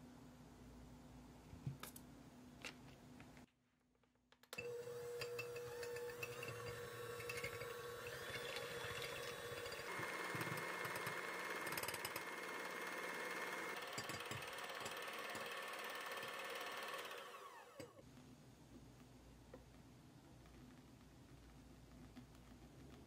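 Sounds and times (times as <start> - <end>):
beaters whipping eggs in glass bowl: 4.6 - 18.0
electric hand mixer whirring: 4.6 - 18.0.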